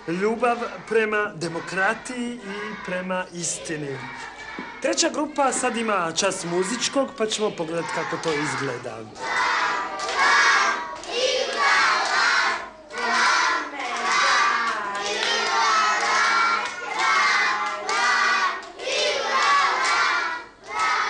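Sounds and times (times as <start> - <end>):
young children singing: 0.0 - 21.0.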